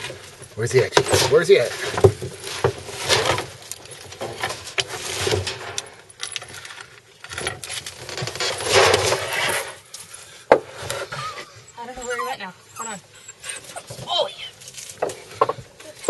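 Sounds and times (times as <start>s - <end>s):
knocks and clinks from lumber pile: 0.0s - 11.3s, 13.8s - 16.0s
loud scraping rustle: 0.0s - 11.6s.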